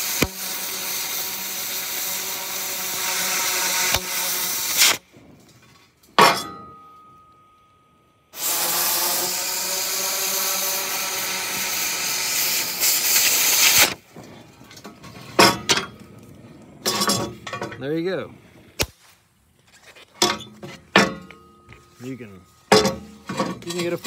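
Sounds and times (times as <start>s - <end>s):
cutting torch hissing: 0.0s - 5.1s, 8.3s - 17.0s.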